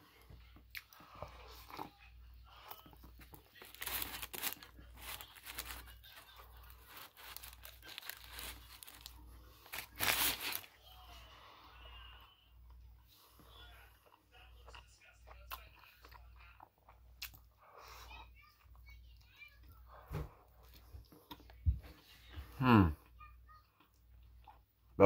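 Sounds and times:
chewing sandwich: 0:00.0 - 0:10.8, 0:12.6 - 0:25.0
paper wrapper crinkling: 0:03.2 - 0:10.8.

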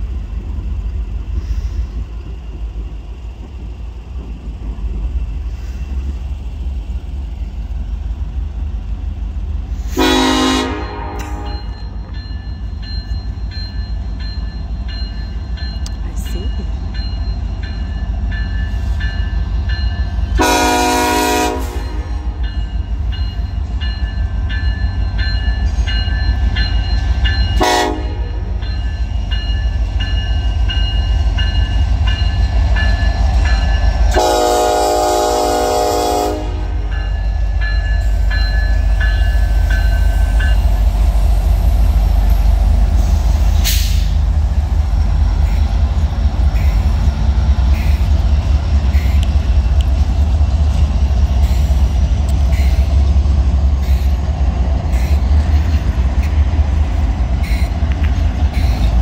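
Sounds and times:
diesel locomotive engine rumble: 0:00.0 - 0:59.0
train horn blasts: 0:09.9 - 0:11.8, 0:20.4 - 0:22.4, 0:27.6 - 0:28.6, 0:34.1 - 0:36.9
faint crossing bell ringing: 0:11.3 - 0:20.3, 0:22.4 - 0:27.6, 0:28.4 - 0:34.0.

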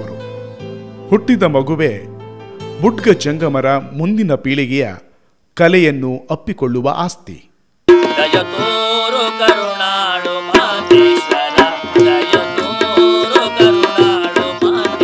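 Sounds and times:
harmonium chords: 0:07.9 - 0:15.0
person singing: 0:07.9 - 0:15.0
tabla rhythm: 0:07.9 - 0:15.0.

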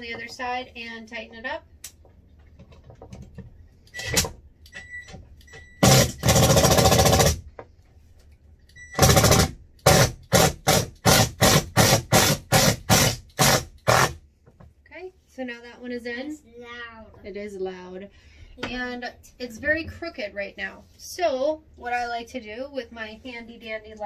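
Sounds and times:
power drill driving a screw: 0:05.8 - 0:07.4, 0:09.0 - 0:14.1.

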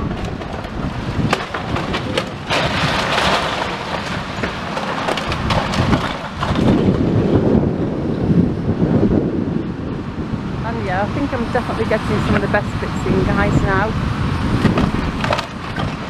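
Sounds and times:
rubble cracking and clattering: 0:00.0 - 0:07.5, 0:14.6 - 0:16.0
falling debris rush: 0:00.0 - 0:08.0
wind rumble on microphone: 0:00.0 - 0:16.0.

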